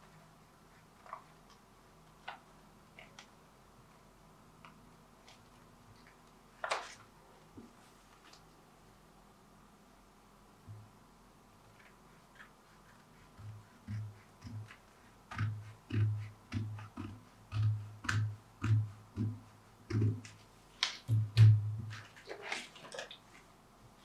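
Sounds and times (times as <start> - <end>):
paper rustling: 5.2 - 7.1.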